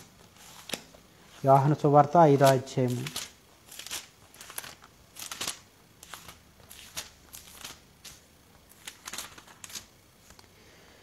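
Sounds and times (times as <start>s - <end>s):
thin pages being turned: 0.0s - 10.4s.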